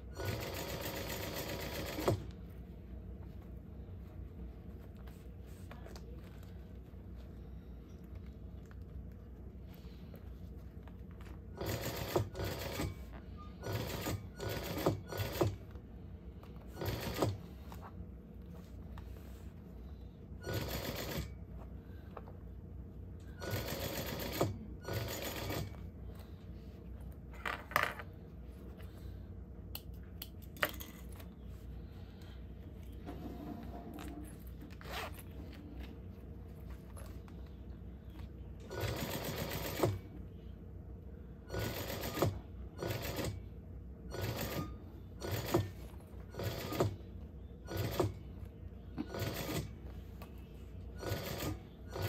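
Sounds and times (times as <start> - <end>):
sewing machine stitching: 0.0 - 2.3, 11.5 - 15.6, 16.7 - 17.6, 20.4 - 21.3, 23.4 - 25.8, 38.6 - 40.1, 41.5 - 43.4, 44.1 - 47.0, 47.7 - 48.2, 49.0 - 49.8, 51.0 - 52.0
steady low hum: 0.0 - 52.0.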